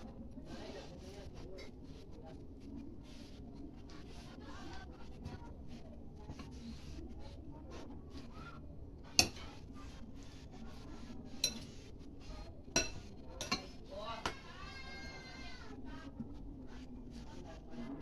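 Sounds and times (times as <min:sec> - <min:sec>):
spoon stirring mash: 0:00.0 - 0:18.0
spoon clinking on glass bowl: 0:11.4 - 0:11.7.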